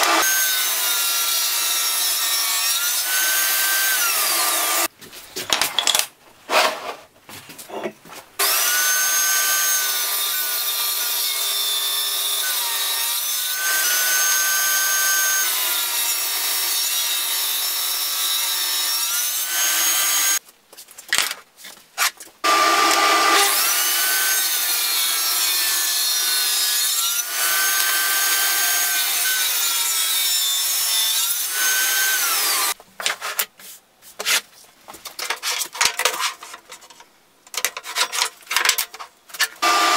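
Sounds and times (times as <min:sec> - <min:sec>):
table saw whining: 0:22.4 - 0:32.8, 0:39.6 - 0:39.9.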